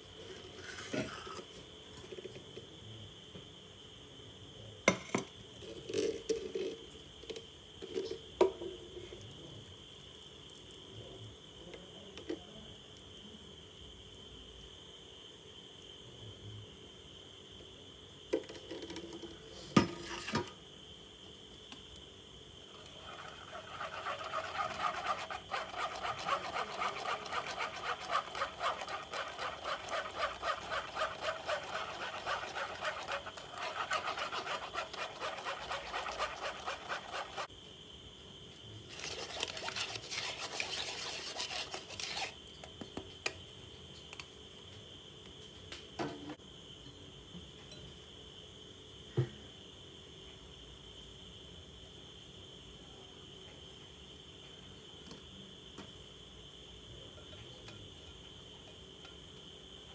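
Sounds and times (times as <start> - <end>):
spatula scraping through metal sieve: 22.9 - 37.5, 38.9 - 42.4.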